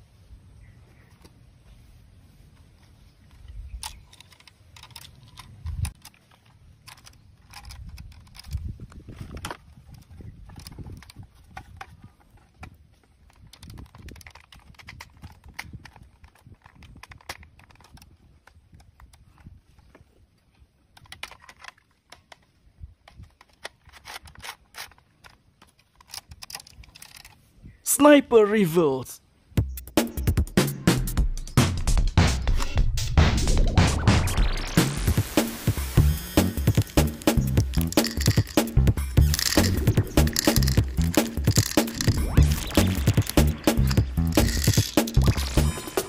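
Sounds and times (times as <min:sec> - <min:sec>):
plastic parts clicking and rattling: 0:03.2 - 0:27.5, 0:36.0 - 0:46.0.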